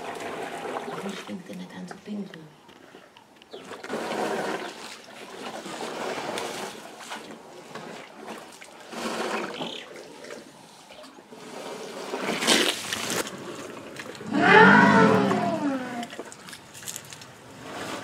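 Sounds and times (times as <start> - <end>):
water trickling and splashing: 2.8 - 14.4, 15.2 - 18.0
elephant spraying water: 3.6 - 10.3.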